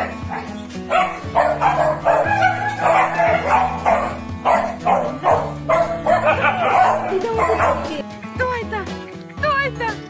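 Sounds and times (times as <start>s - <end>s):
dogs barking and yipping: 0.0s - 8.0s
background music with low notes: 0.0s - 10.0s.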